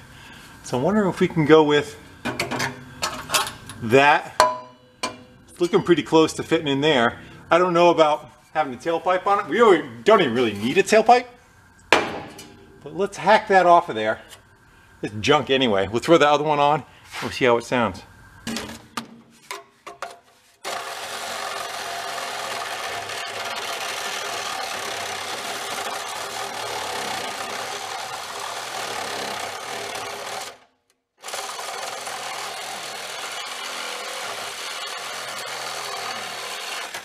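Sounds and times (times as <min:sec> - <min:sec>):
reciprocating saw cutting steel: 0:20.6 - 0:30.6, 0:31.2 - 0:37.0.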